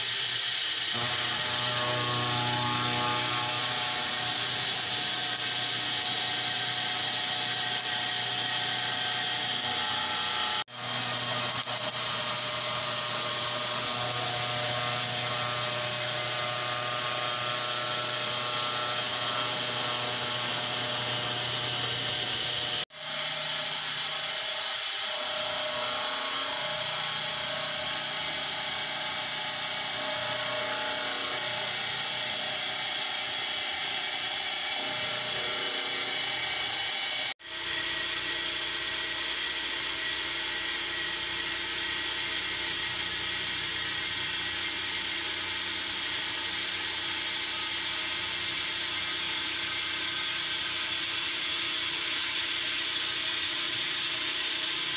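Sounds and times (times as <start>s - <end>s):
high cutting hiss: 0.0s - 22.8s
constant spindle tone: 0.0s - 37.3s
milling machine cutting metal: 0.1s - 38.6s.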